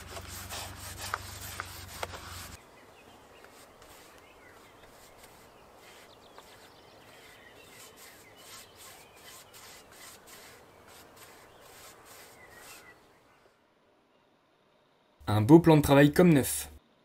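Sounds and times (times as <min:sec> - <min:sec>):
paintbrush strokes on wooden boards: 0:00.0 - 0:02.6, 0:03.2 - 0:13.1
birds chirping: 0:00.0 - 0:15.1.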